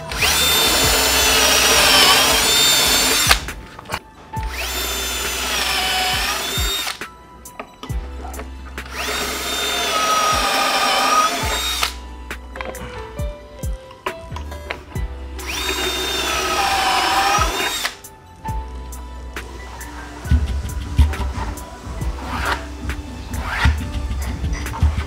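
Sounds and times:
power drill whining: 0.0 - 7.0, 8.2 - 12.1, 15.4 - 18.1, 19.4 - 25.0.

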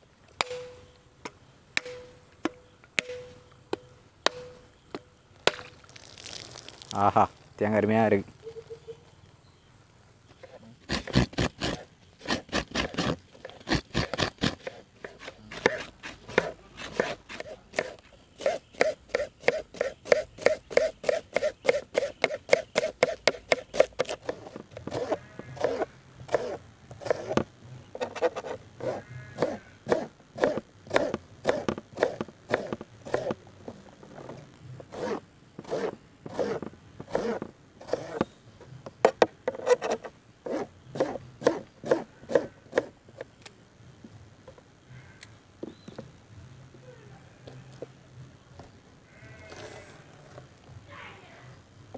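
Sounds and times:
coconut scraping on blade: 10.4 - 33.4, 34.8 - 38.3, 39.0 - 43.0.

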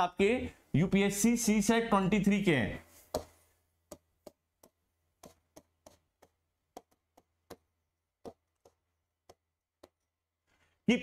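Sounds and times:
pen tip tapping on board: 3.1 - 10.1.

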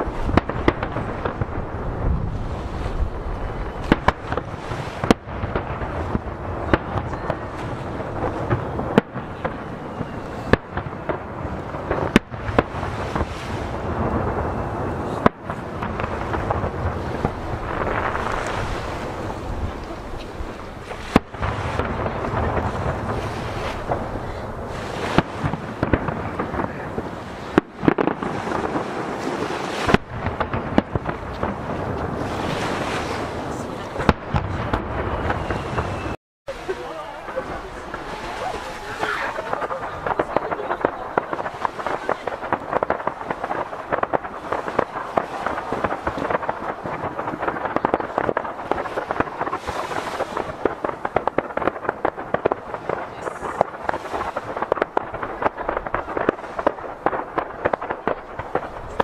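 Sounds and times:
firework crackling: 0.0 - 59.0
fireworks bursting with bangs: 0.0 - 59.0
waves washing against jetty: 0.0 - 59.0
wind on microphone: 0.0 - 59.0.

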